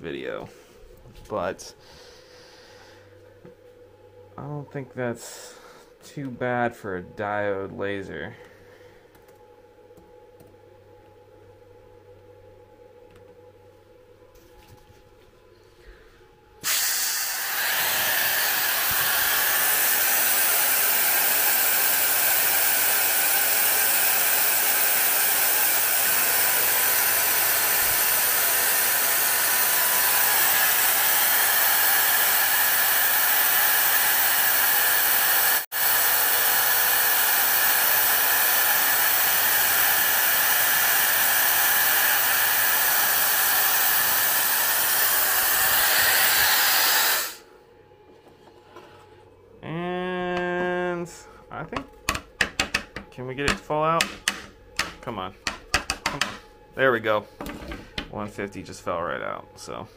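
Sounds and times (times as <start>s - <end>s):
air assist hissing: 16.6s - 47.5s.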